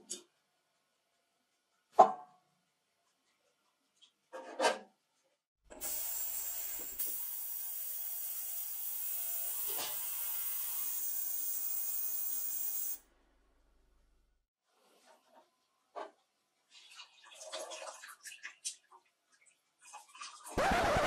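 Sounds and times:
ultrasonic cleaner hissing: 5.8 - 7.6.

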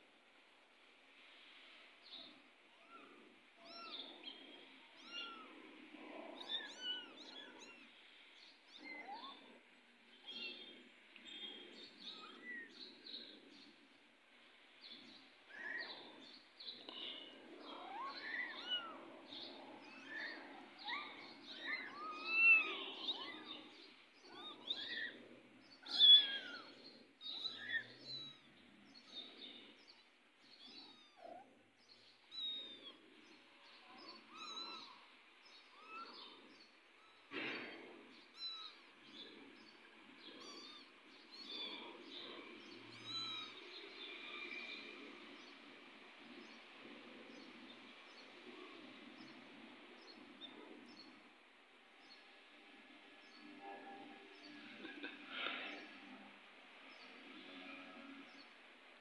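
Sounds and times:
kittens mewing: 17.7 - 25.2, 25.8 - 29.2, 30.7 - 31.6, 34.0 - 35.0, 40.4 - 42.1.

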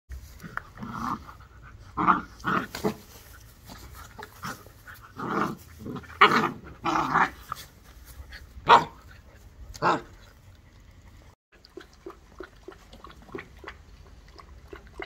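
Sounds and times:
puppies growling: 0.3 - 7.6.

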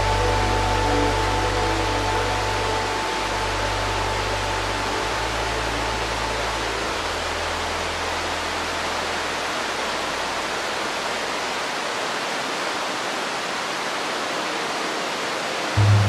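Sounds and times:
low hum: 0.0 - 10.9, 15.8 - 16.0
waterfall rushing: 0.0 - 16.0.

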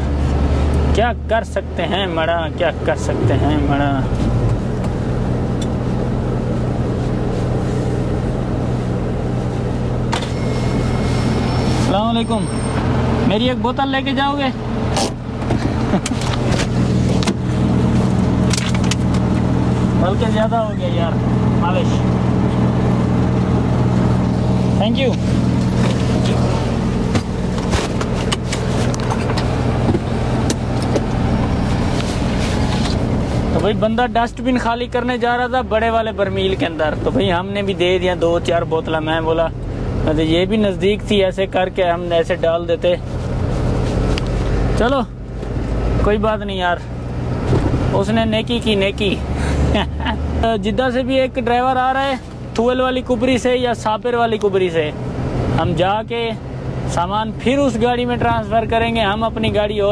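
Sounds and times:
diesel truck engine humming: 0.0 - 59.9
sharp clicks and knocks: 18.0 - 19.5.

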